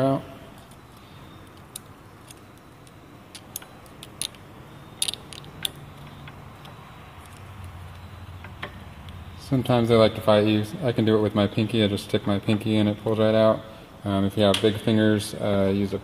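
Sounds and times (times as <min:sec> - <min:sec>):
metal pick clicking and scraping: 0:00.6 - 0:09.2.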